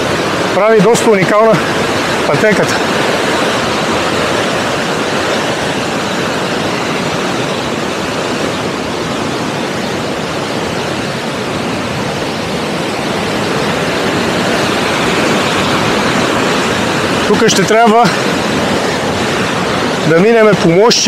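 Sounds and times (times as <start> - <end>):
river rushing: 0.0 - 21.0.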